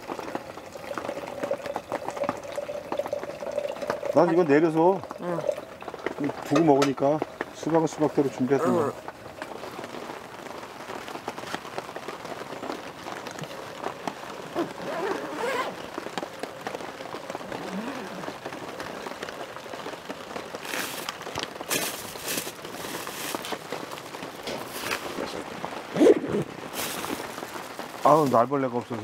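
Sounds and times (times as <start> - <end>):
rain pattering: 0.0 - 29.0
rustling bursts: 20.5 - 28.6.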